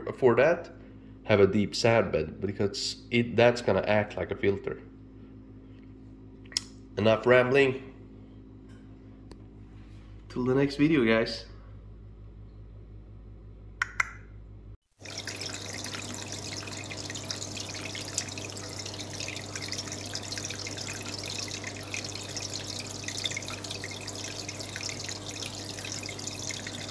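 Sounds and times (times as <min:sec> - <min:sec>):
steady low hum: 0:00.0 - 0:26.9
water trickling and splashing: 0:14.9 - 0:26.9.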